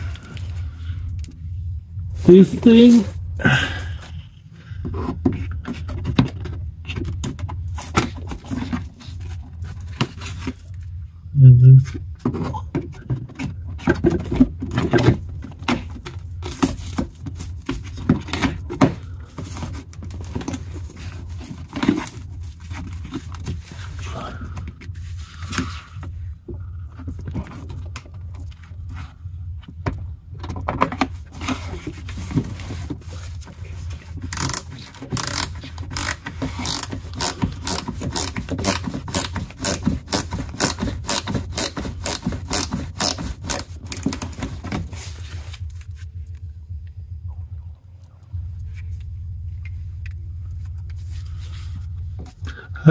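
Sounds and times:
tool scraping plastic: 0:30.8 - 0:45.9
screwdriver turning screws into plastic: 0:34.3 - 0:44.2.

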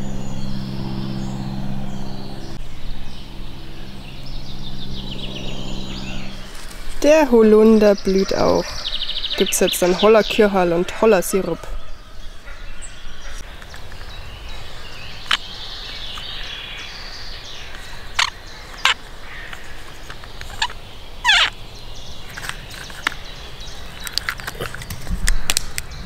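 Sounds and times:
birds calling: 0:00.0 - 0:26.0
short squeaky call: 0:20.5 - 0:21.5
sharp clicks or snaps: 0:24.0 - 0:26.0.

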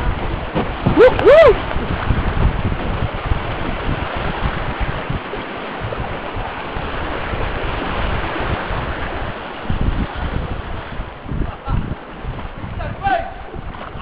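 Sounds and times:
wind buffeting microphone: 0:00.0 - 0:14.0
river rapids rushing: 0:00.9 - 0:01.6.

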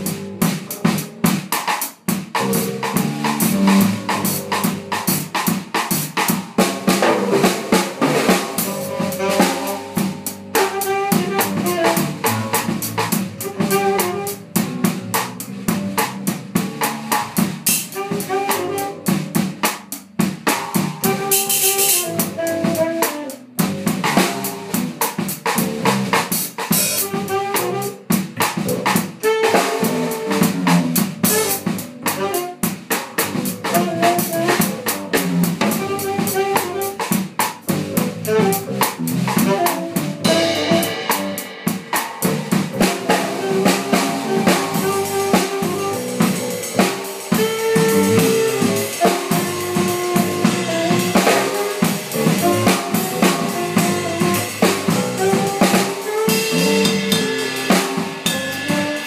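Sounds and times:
drum kit groove: 0:00.0 - 0:59.0
saxophone melody: 0:02.4 - 0:05.1, 0:07.0 - 0:19.7, 0:21.0 - 0:25.2, 0:26.1 - 0:59.0
electric bass line: 0:37.7 - 0:46.8, 0:47.8 - 0:49.0.

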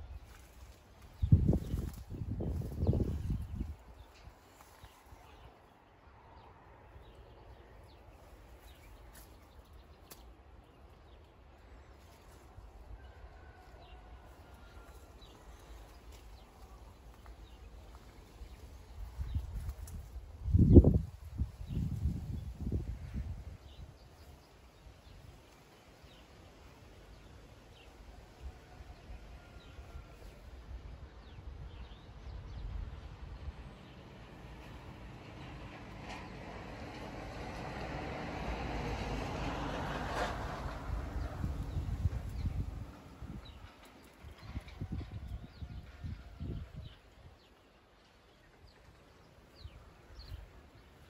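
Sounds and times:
wind rumble on microphone: 0:00.0 - 0:05.5, 0:13.8 - 0:25.4, 0:28.4 - 0:47.7
wind buffeting microphone: 0:01.0 - 0:04.6, 0:17.4 - 0:24.2, 0:39.9 - 0:47.5.

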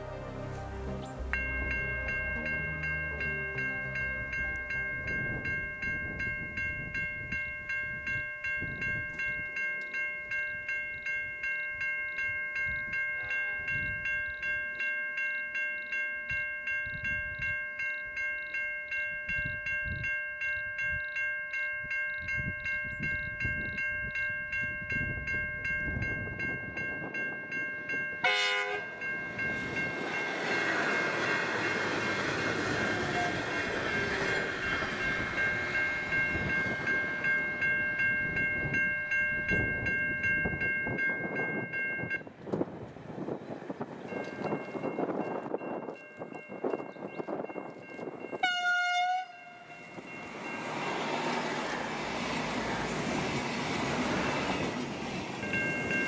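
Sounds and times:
diesel railcar passing: 0:00.0 - 0:56.0
level crossing bells ringing: 0:01.2 - 0:42.3, 0:44.0 - 0:52.9, 0:54.2 - 0:56.0
train horn blast: 0:28.2 - 0:29.0, 0:32.8 - 0:33.7, 0:48.4 - 0:49.8.

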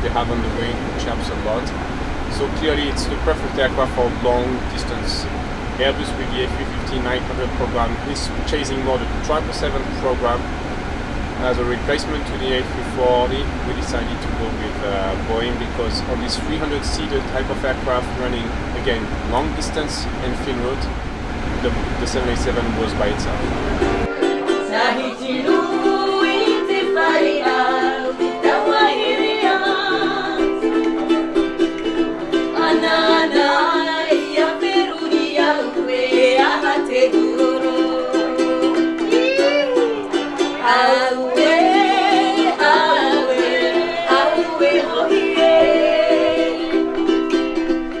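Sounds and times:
ukulele strumming chords: 0:00.0 - 0:48.0
woman singing: 0:24.5 - 0:30.7, 0:32.5 - 0:39.6, 0:40.6 - 0:47.0.

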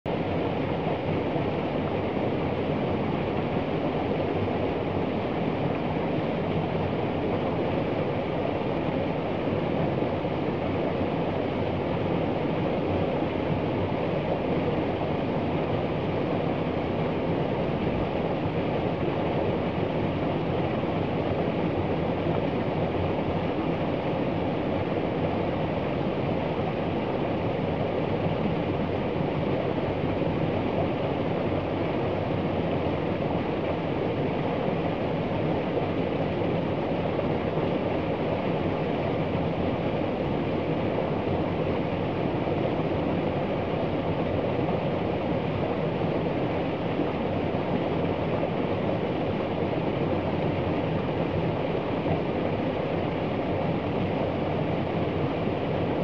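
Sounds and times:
stream rushing over rocks: 0:27.4 - 0:56.0.

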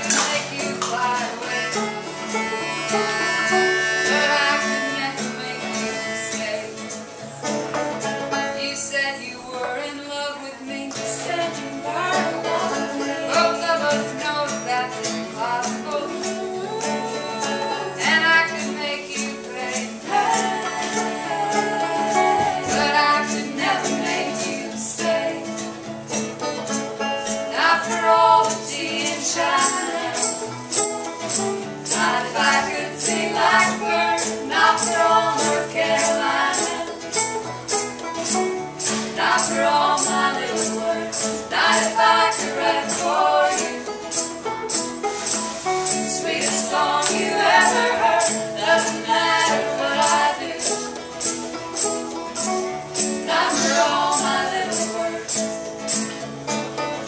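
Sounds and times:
women singing in harmony: 0:00.0 - 0:07.1, 0:08.0 - 0:26.3, 0:27.2 - 0:56.2
acoustic guitar strumming: 0:00.0 - 0:57.0
banjo strumming: 0:00.0 - 0:57.0
hand percussion rattle: 0:27.6 - 0:56.2.

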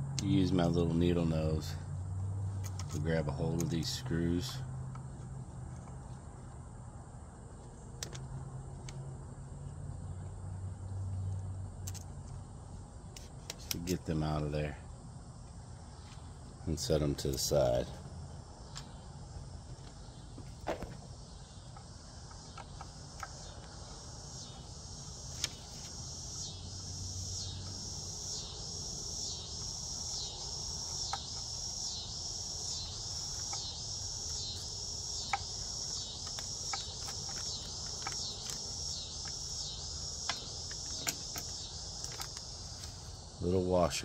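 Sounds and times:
insects pulsing chorus: 0:00.0 - 0:44.0.

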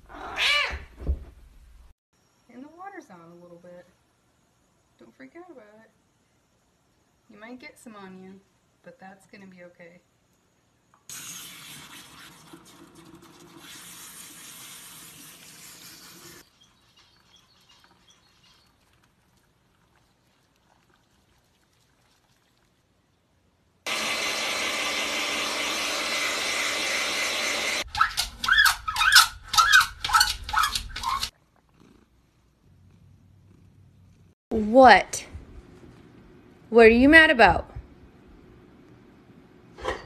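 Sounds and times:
water spraying from sink sprayer: 0:11.1 - 0:16.5.

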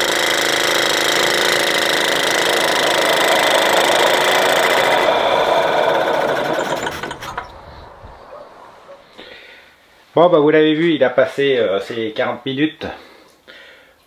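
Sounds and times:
moped engine running: 0:00.0 - 0:09.1
engine clicks stopping: 0:00.0 - 0:09.2.

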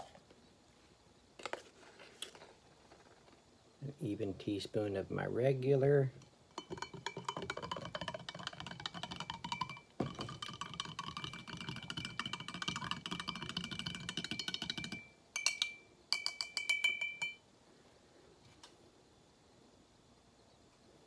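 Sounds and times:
spoon clinking in glass mug: 0:06.5 - 0:17.4.

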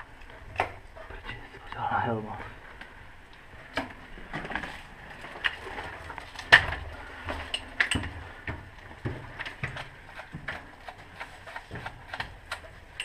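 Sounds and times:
footsteps crunching over debris: 0:03.9 - 0:12.8.

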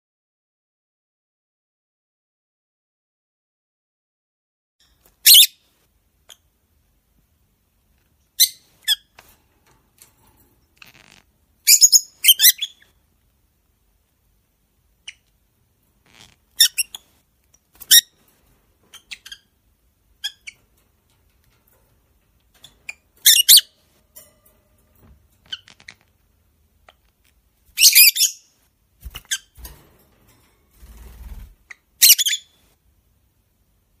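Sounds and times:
lovebirds chirping and squawking: 0:05.1 - 0:05.6, 0:08.4 - 0:09.2, 0:10.8 - 0:13.0, 0:15.0 - 0:15.3, 0:16.1 - 0:17.2, 0:17.8 - 0:18.2, 0:18.8 - 0:19.6, 0:20.2 - 0:20.7, 0:22.5 - 0:23.9, 0:25.4 - 0:26.1, 0:27.7 - 0:30.0, 0:31.4 - 0:32.7.

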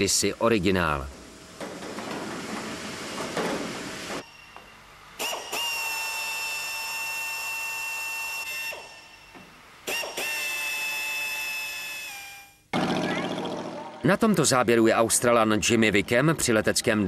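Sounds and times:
power drill whining: 0:04.2 - 0:12.6.

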